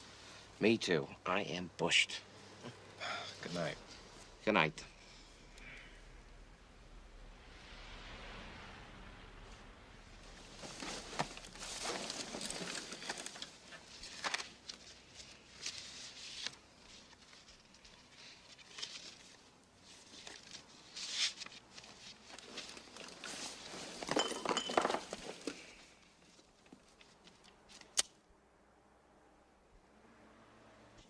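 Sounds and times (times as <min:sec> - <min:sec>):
bedclothes rustling: 0:10.2 - 0:27.2.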